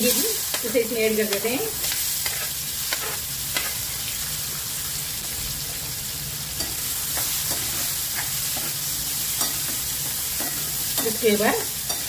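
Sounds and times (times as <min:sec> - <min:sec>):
spatula scraping and stirring: 0:00.0 - 0:03.9, 0:06.6 - 0:12.0
food sizzling in hot oil: 0:00.0 - 0:12.0.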